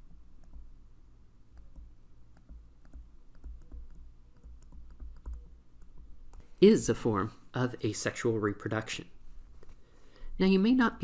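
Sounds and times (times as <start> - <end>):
low steady hum: 0.0 - 11.0
stylus tapping on a tablet: 1.6 - 6.4.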